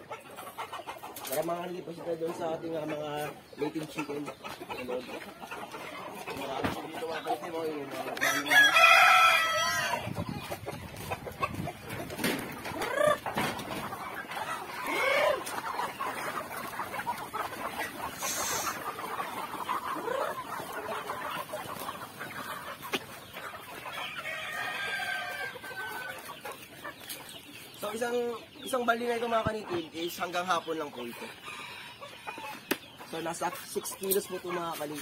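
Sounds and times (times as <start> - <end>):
chickens clucking: 0.0 - 35.0
rooster crowing: 8.2 - 10.0.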